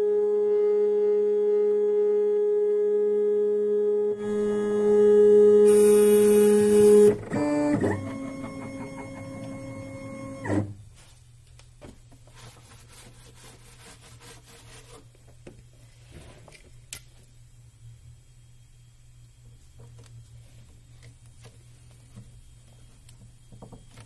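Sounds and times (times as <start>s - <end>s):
stepper motors whining: 4.2s - 10.7s.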